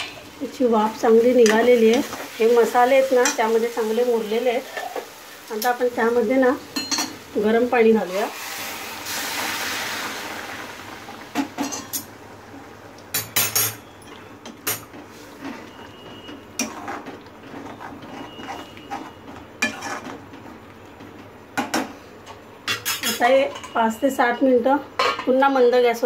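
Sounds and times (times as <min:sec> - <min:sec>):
metal spoon clinking and scraping pan: 0:17.6 - 0:20.2, 0:22.7 - 0:23.8.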